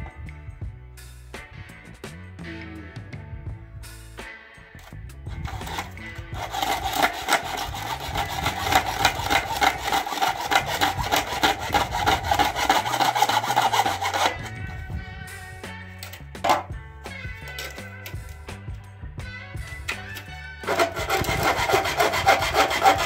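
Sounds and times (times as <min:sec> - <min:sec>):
background music: 0:00.0 - 0:23.0
hacksaw cutting plastic: 0:05.3 - 0:14.6, 0:19.9 - 0:23.0.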